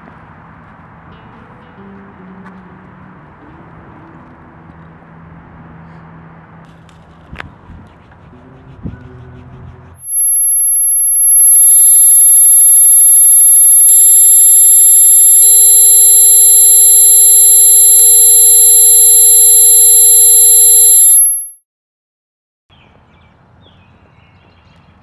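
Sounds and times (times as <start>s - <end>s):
high electronic ringing tones: 10.0s - 21.6s.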